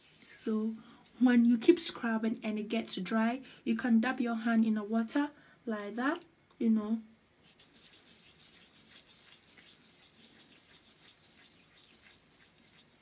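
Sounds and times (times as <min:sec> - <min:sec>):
fingertips rubbing wet scrub on skin: 0:07.4 - 0:13.0.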